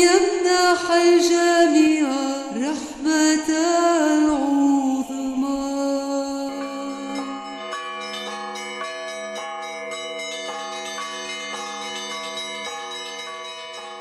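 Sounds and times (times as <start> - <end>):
church bells ringing: 6.9 - 14.0.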